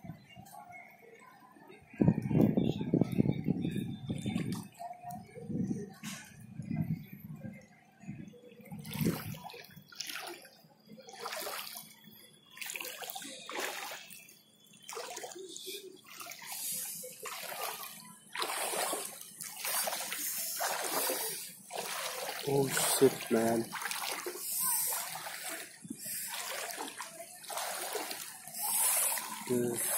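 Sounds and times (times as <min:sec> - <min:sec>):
footsteps wading through water: 0:08.7 - 0:29.9.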